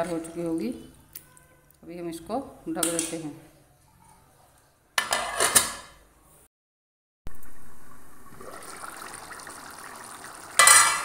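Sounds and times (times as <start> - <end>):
curry bubbling in a pan: 7.3 - 11.0.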